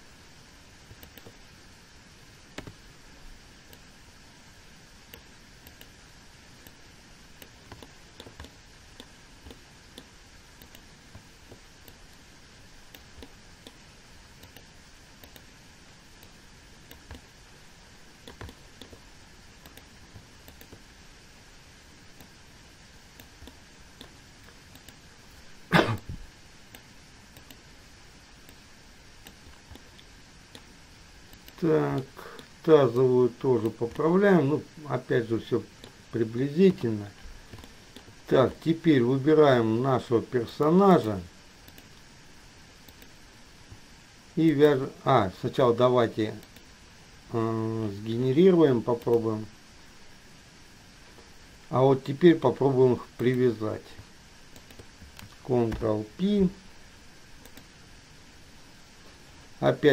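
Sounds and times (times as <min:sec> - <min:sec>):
low steady hiss: 0:00.0 - 0:59.9
computer mouse clicks: 0:00.9 - 0:01.4, 0:02.5 - 0:02.8, 0:05.1 - 0:06.0, 0:07.4 - 0:12.2, 0:12.9 - 0:13.8, 0:14.4 - 0:15.5, 0:16.2 - 0:17.3, 0:18.2 - 0:20.8, 0:23.1 - 0:25.0, 0:26.7 - 0:27.6, 0:29.2 - 0:30.7, 0:31.3 - 0:32.5, 0:37.5 - 0:38.2, 0:41.6 - 0:42.1, 0:42.8 - 0:43.8, 0:46.4 - 0:46.7, 0:54.5 - 0:55.9, 0:57.4 - 0:57.7.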